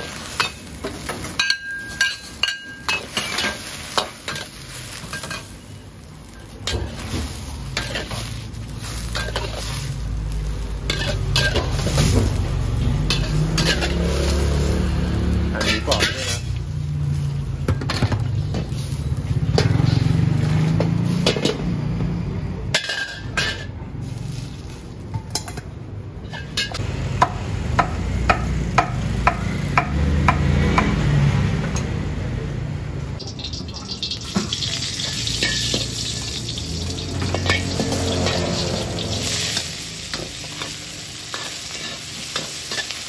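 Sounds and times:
metal ladle clanking in a wok: 0:00.0 - 0:05.6, 0:10.8 - 0:14.6, 0:22.7 - 0:23.8, 0:33.2 - 0:43.0
water boiling: 0:00.0 - 0:17.7, 0:33.2 - 0:42.9
oil sizzling in a wok: 0:00.0 - 0:25.2, 0:33.2 - 0:43.0.

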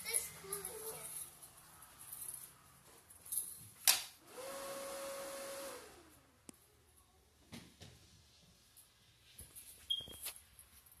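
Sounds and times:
small motor humming: 0:04.3 - 0:06.1.

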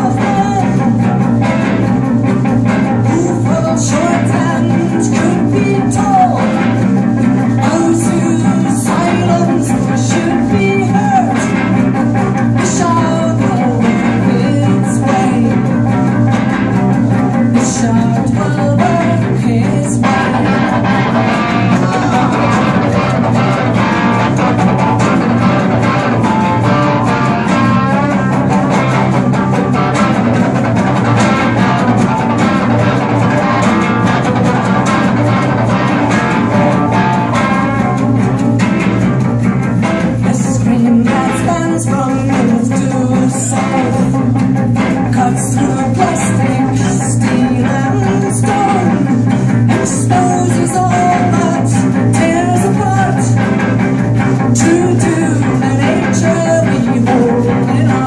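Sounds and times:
woman singing: 0:00.0 - 0:01.8, 0:02.9 - 0:16.1, 0:17.4 - 0:29.5, 0:40.2 - 0:58.0
electric guitars: 0:00.0 - 0:58.0.

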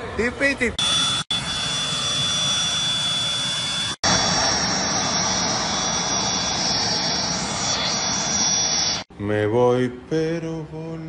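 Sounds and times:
jet turbine engines running: 0:00.7 - 0:09.1.

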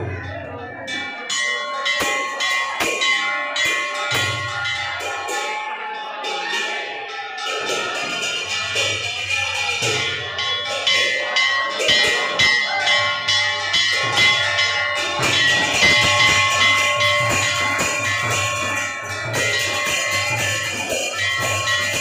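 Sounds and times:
bells clanging rapidly: 0:00.0 - 0:22.0.

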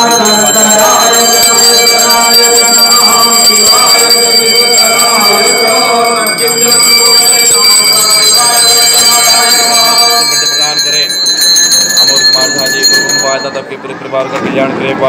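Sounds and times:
person chanting: 0:00.0 - 0:11.1
temple bells ringing: 0:00.0 - 0:14.1.

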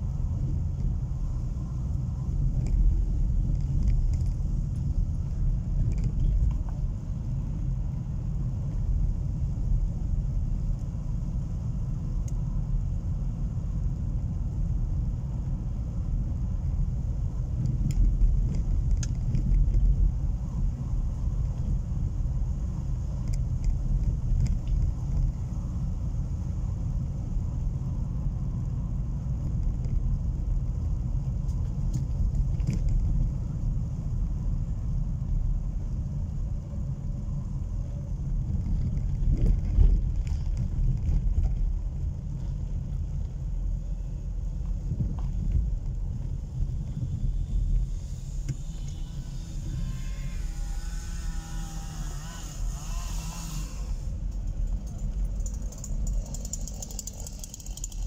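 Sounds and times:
car engine and tyres rumbling: 0:00.0 - 0:58.0
faint clicks and rattles: 0:54.2 - 0:58.0.

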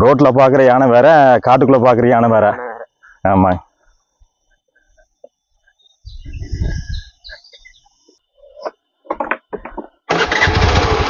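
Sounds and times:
knocks: 0:09.1 - 0:10.0
motorcycle engine running: 0:10.1 - 0:11.0.

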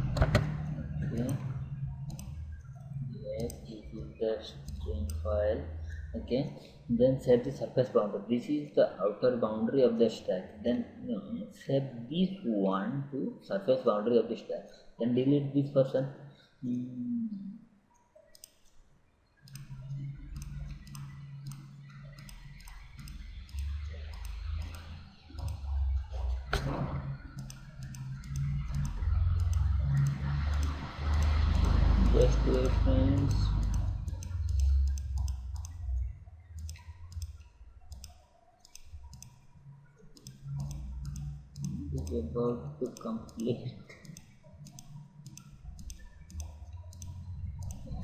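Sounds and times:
computer mouse clicking: 0:00.0 - 0:06.7, 0:18.0 - 0:18.8, 0:19.4 - 0:48.0
low steady hum: 0:00.0 - 0:48.0.

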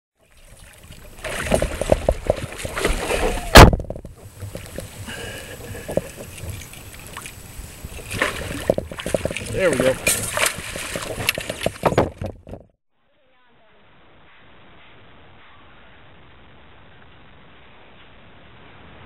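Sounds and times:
fish thrashing in water: 0:00.2 - 0:12.6
water splashing against hull: 0:00.2 - 0:12.8.

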